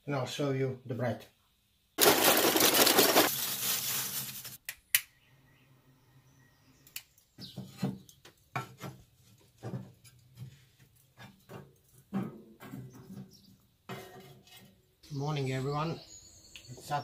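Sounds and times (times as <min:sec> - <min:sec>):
charcoal pouring from paper sack: 0:02.0 - 0:04.6.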